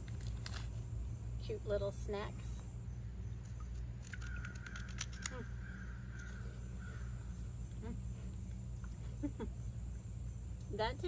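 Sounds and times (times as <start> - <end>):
crunchy chewing: 0.0 - 0.9, 3.4 - 9.2
steady low hum: 0.0 - 11.0.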